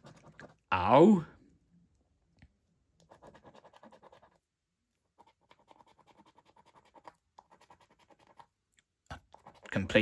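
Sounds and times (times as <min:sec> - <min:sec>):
coin scratching a scratchcard: 0:03.1 - 0:04.4, 0:05.2 - 0:08.5.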